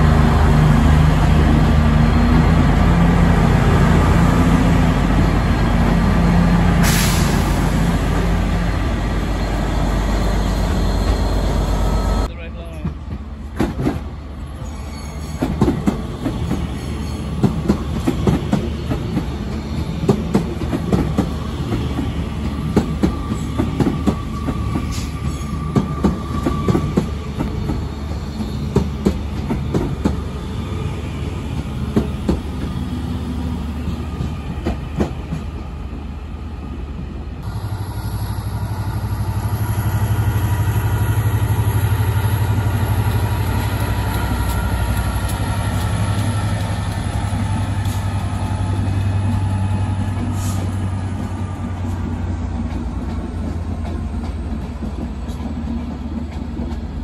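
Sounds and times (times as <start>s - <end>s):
diesel locomotive engine hum: 0.0s - 57.0s
train wheels clicking over rail joints: 12.7s - 14.1s, 15.3s - 30.4s, 39.1s - 57.0s.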